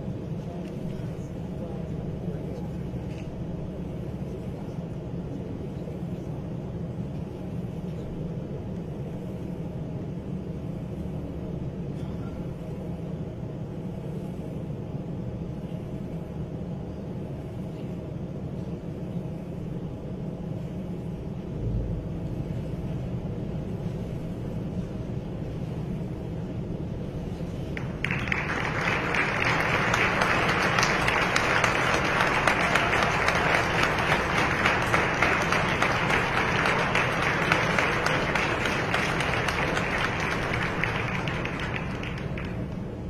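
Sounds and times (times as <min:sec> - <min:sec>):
hall ambience: 0:00.0 - 0:43.0
audience applauding: 0:27.8 - 0:42.9.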